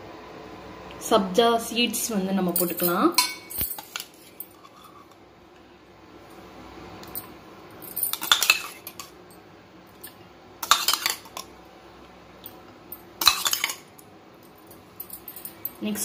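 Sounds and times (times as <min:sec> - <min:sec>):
spoon scraping metal cup: 0:13.2 - 0:13.8.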